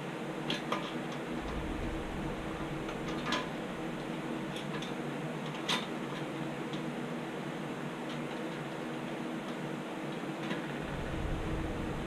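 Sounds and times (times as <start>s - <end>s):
background hum: 0.9s - 8.7s, 10.5s - 12.0s.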